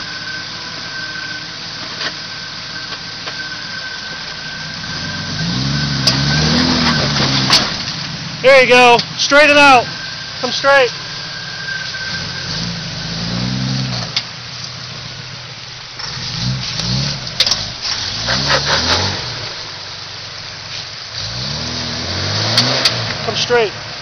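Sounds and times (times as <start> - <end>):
engine revving: 0.0 - 24.0.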